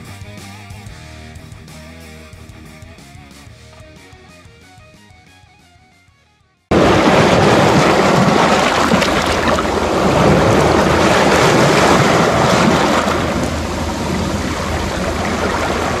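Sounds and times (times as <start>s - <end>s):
sea waves breaking on rocks: 6.7s - 16.0s.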